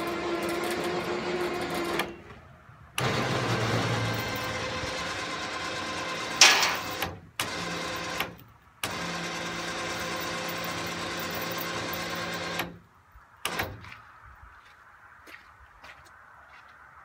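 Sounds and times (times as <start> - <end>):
electric winch motor whining: 0.0 - 2.4, 3.0 - 12.8
sharp clatter: 6.1 - 7.2.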